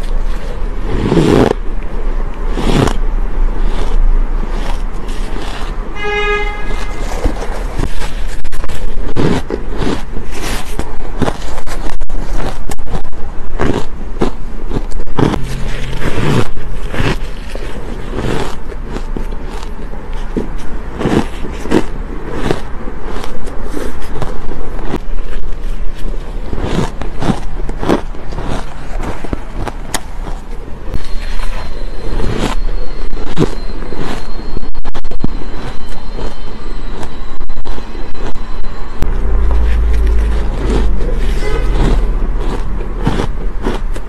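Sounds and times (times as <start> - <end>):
chewing ice crunches: 0.0 - 5.9, 6.8 - 44.0
fingers scraping ice in tub: 3.6 - 6.1.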